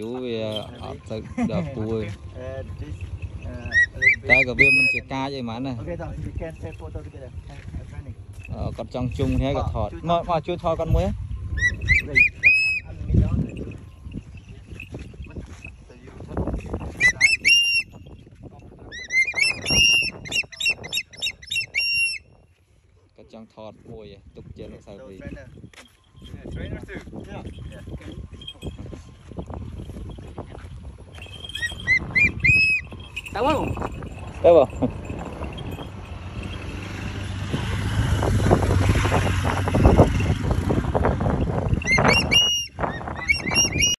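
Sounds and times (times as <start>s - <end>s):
raptor high whistling calls: 3.0s - 5.3s, 11.5s - 13.1s, 17.0s - 18.1s, 18.9s - 22.4s, 31.2s - 33.9s, 41.7s - 43.9s
motor vehicle engine rumble: 24.2s - 43.9s.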